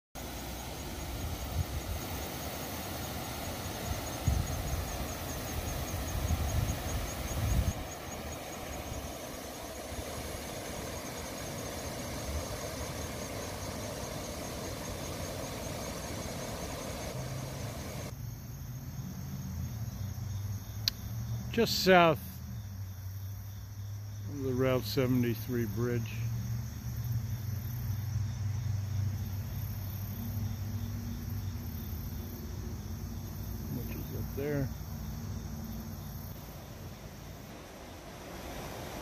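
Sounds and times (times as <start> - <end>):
creek water rushing over rocks: 0.2 - 18.1, 36.4 - 39.0
wind buffeting microphone: 4.1 - 8.1.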